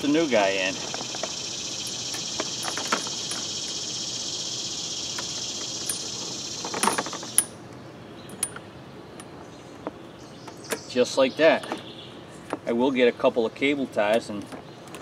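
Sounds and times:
high insect drone: 0.0s - 7.6s.

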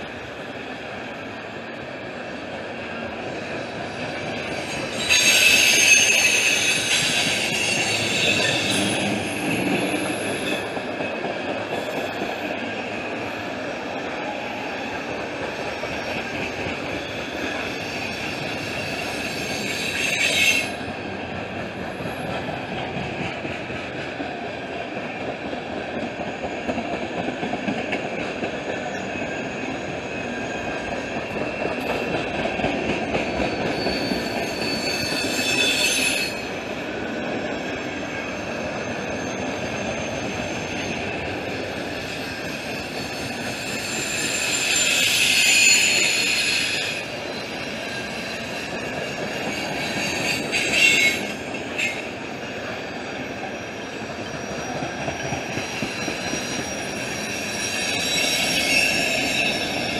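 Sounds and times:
train wheels rumbling on rail: 0.0s - 59.9s
high-pitched wheel squeal: 4.5s - 10.8s, 17.0s - 20.8s, 33.2s - 36.6s, 37.8s - 52.1s, 52.7s - 59.9s.

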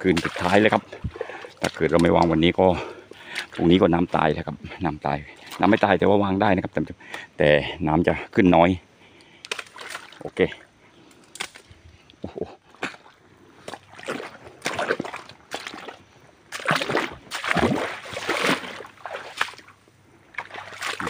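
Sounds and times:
shallow water splashing: 0.0s - 3.8s, 12.8s - 21.0s.

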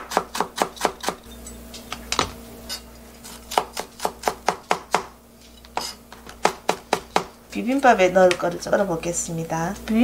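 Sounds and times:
knife chopping on cutting board: 0.0s - 1.2s, 3.3s - 7.4s.

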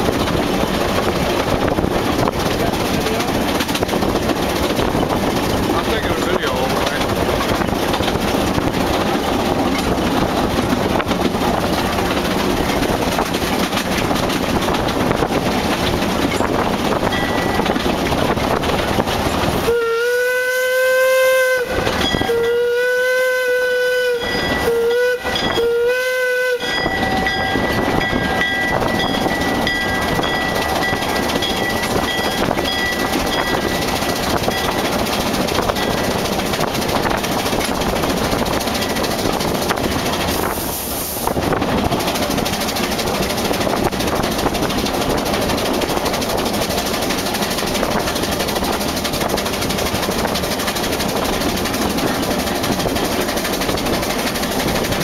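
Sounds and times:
train wheels clattering on rails: 0.0s - 19.7s, 21.6s - 22.7s, 23.9s - 25.7s, 26.6s - 55.0s
steam whistle blasts: 19.6s - 27.2s.

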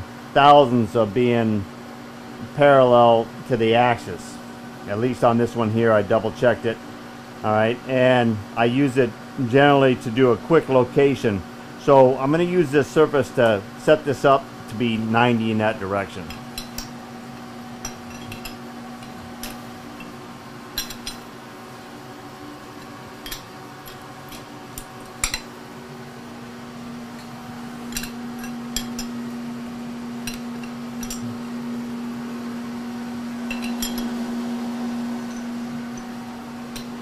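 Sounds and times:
steady low hum: 0.0s - 37.0s
wrench clinking on metal bolts: 17.8s - 20.1s, 20.8s - 21.3s, 33.5s - 34.1s.

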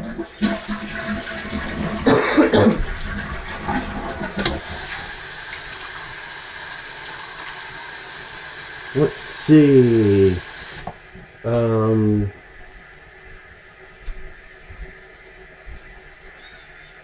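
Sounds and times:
person coughing: 2.1s - 2.8s
steady hiss: 4.0s - 17.0s.

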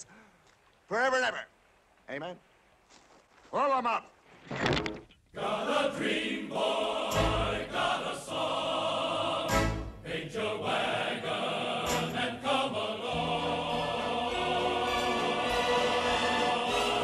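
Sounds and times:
choir singing over orchestra: 5.4s - 17.0s.

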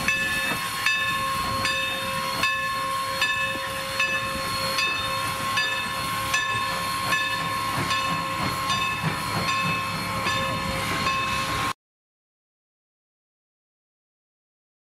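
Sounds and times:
steam hiss: 0.0s - 11.7s.

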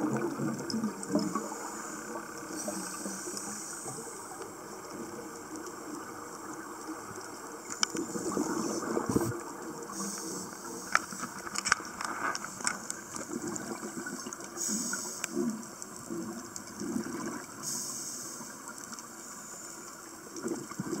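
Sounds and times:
underwater regulator bubbles gurgling: 0.0s - 21.0s
sharp clicks and pops: 7.6s - 8.3s, 10.8s - 13.6s.

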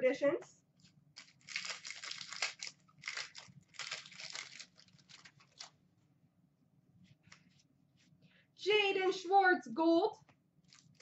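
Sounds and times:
wrapper tearing and crinkling: 1.2s - 5.8s, 10.6s - 11.0s.

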